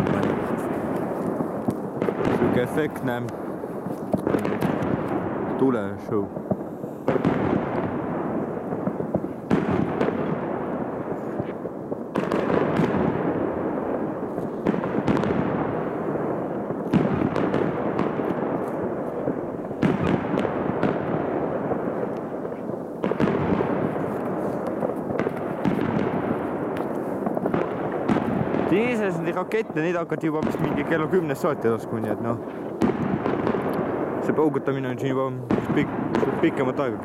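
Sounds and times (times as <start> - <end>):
popping and banging: 0.0 - 5.7, 23.0 - 34.4
firework bangs: 0.0 - 37.0.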